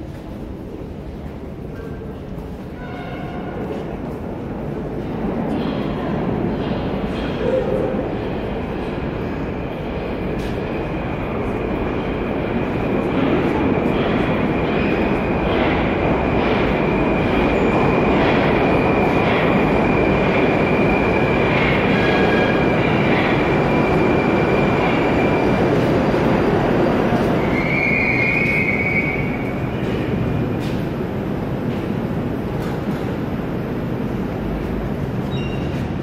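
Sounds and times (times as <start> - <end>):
train wheels rumbling: 0.0 - 36.0
train wheel squeal: 27.2 - 30.0, 35.2 - 35.9.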